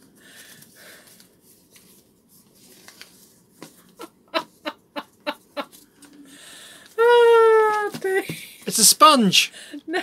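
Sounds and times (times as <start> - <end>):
paper rustling: 0.3 - 4.0
person chuckling: 4.0 - 6.2.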